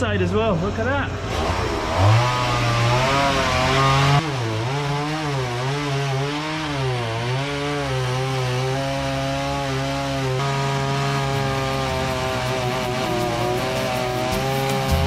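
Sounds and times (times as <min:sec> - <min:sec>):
chainsaw cutting wood: 0:01.2 - 0:15.0.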